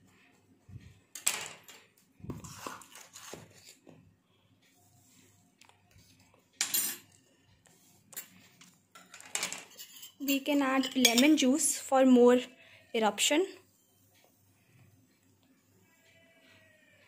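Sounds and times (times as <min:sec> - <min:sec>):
knife and spoon scraping a plate: 0:02.3 - 0:03.8, 0:08.1 - 0:11.4.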